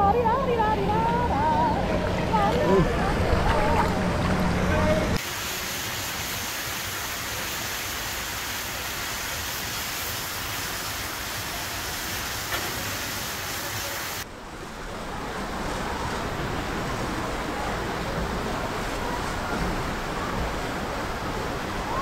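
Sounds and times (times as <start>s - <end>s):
water rushing and splashing: 0.3s - 22.0s.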